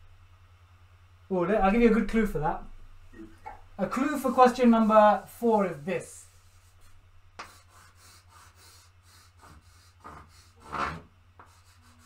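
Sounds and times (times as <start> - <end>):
chalk scratching on blackboard: 3.8 - 12.0.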